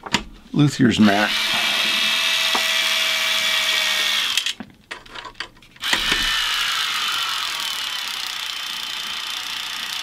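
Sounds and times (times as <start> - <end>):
electric screwdriver whining: 1.1 - 4.6, 5.8 - 10.0.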